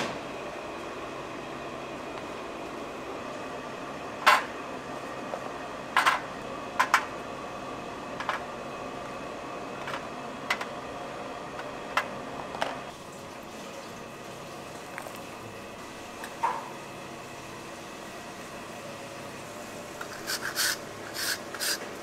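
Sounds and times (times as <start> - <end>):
room hum: 0.0 - 22.0.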